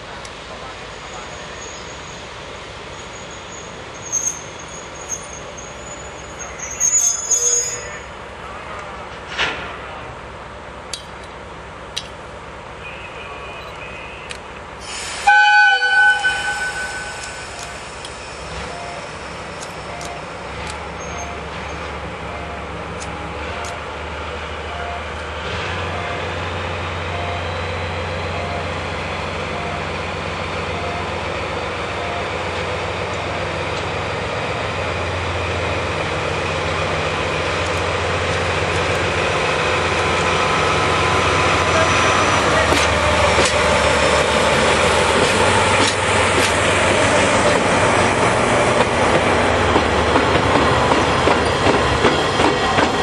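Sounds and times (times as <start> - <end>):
locomotive horn blast: 15.1 - 17.7
diesel engine humming: 17.1 - 53.0.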